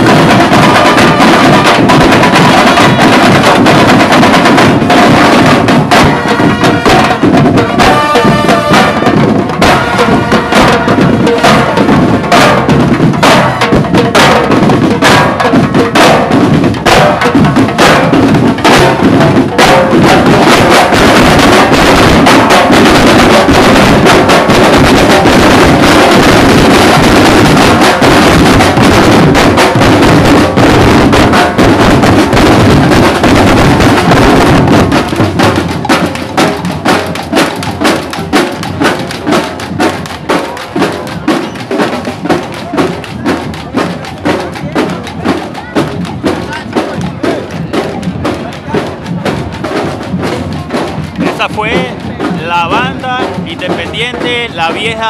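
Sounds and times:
snare and bass drums marching: 0.0s - 55.0s.

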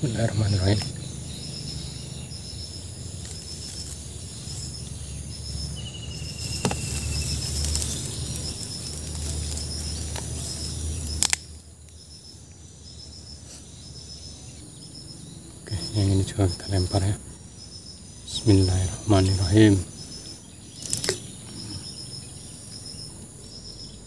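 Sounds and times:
insects chirping: 0.0s - 24.0s
sharp clicks: 11.0s - 12.0s, 20.8s - 21.3s.

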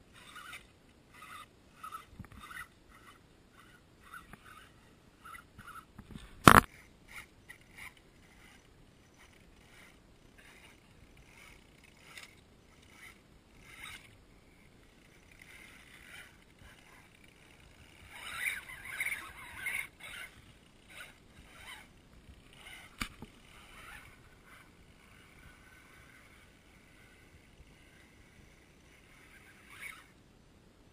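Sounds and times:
electric motor and gears whining: 0.1s - 30.2s
sharp click: 6.4s - 6.7s, 22.8s - 23.3s.

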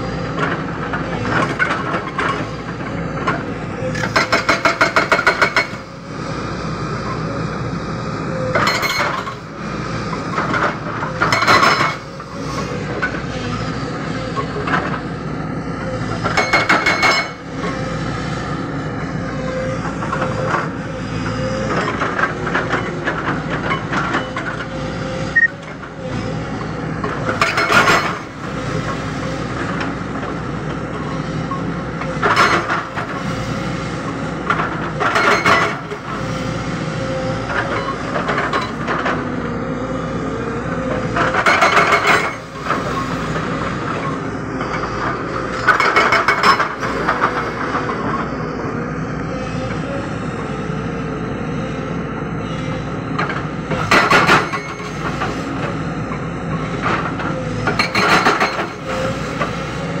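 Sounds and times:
excavator engine running: 0.0s - 60.0s
hydraulic breaker hammering rock: 0.3s - 5.9s, 8.4s - 9.6s, 10.2s - 13.3s, 16.1s - 17.8s, 27.0s - 31.1s, 32.0s - 33.4s, 34.4s - 36.3s, 40.8s - 48.3s, 53.1s - 55.8s, 56.6s - 60.0s.

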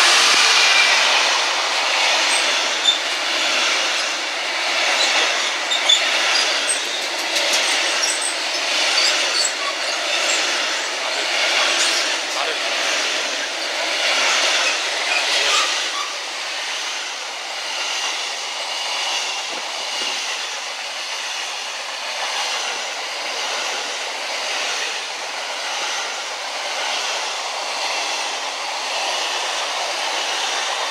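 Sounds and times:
high wheel squeal: 0.0s - 20.7s
train wheels rattling on rails: 0.0s - 30.9s.

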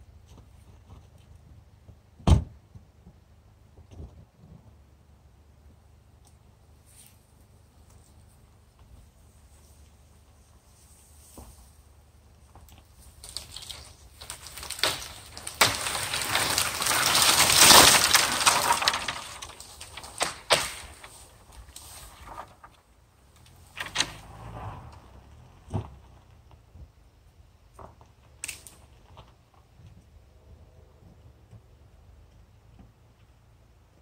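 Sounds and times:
wood cracking and splitting: 12.5s - 26.6s, 27.7s - 29.4s
tree crashing down: 13.0s - 26.1s.

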